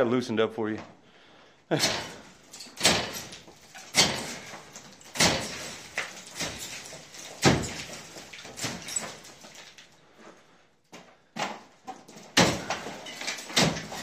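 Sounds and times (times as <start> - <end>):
heavy strikes on plaster: 1.7 - 9.6, 12.2 - 14.0
falling debris rattle: 1.7 - 10.1, 11.4 - 14.0.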